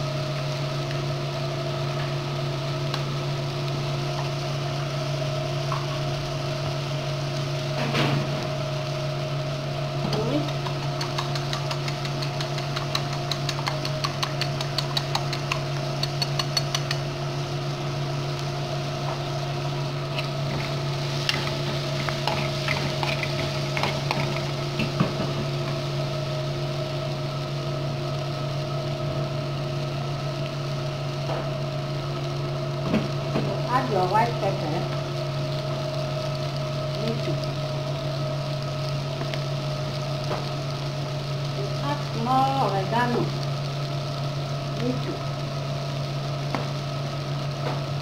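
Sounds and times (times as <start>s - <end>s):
low machine hum: 0.0s - 48.0s
fork beating eggs: 10.5s - 17.0s, 20.2s - 24.6s.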